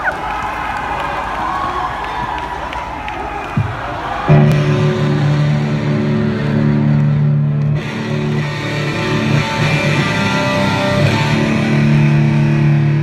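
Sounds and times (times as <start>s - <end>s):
loud electric guitar: 4.3s - 13.0s.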